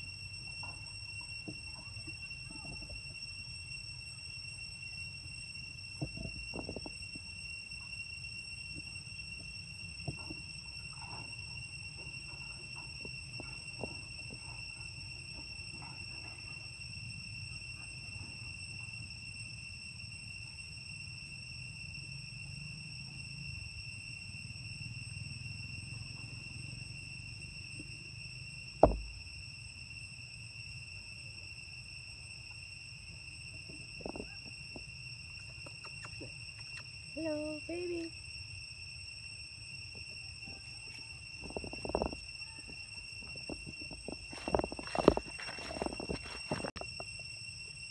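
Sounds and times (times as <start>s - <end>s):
high-pitched insect drone: 0.0s - 47.9s
sharp knock: 28.8s - 29.2s.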